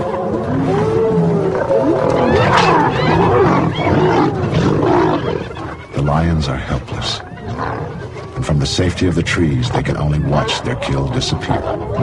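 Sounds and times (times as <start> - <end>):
lions growling and snarling: 0.0 - 8.4
hyenas cackling and whooping: 0.4 - 6.3, 7.2 - 8.3.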